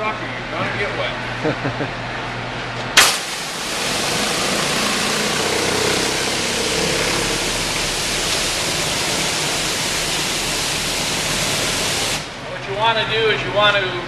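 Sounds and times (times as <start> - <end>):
pressure washer water jets hissing: 3.0 - 12.4.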